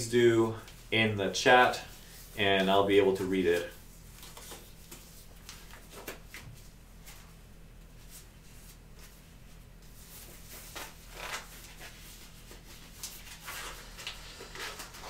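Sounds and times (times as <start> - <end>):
steady low hum: 0.0 - 15.0
nitrile gloves rustling and snapping: 9.8 - 15.0.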